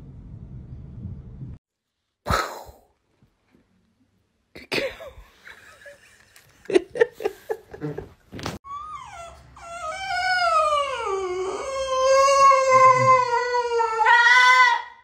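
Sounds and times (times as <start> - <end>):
dog howling: 8.7 - 15.0.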